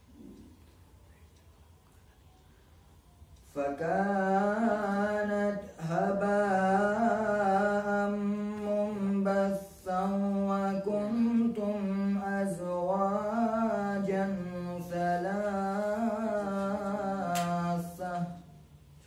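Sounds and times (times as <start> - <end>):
man chanting melodically: 3.4 - 18.6.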